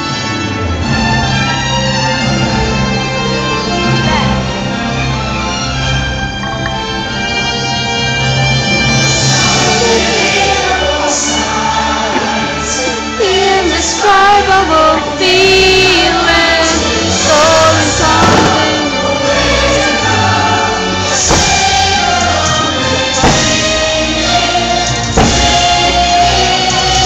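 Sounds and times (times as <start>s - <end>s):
choir singing over music: 7.0s - 27.0s
deep thumps: 17.7s - 19.0s, 21.2s - 26.3s.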